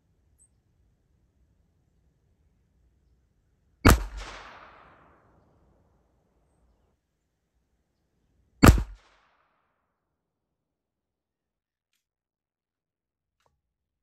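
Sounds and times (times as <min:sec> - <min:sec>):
pistol shots: 0:03.8 - 0:05.4, 0:08.6 - 0:09.4.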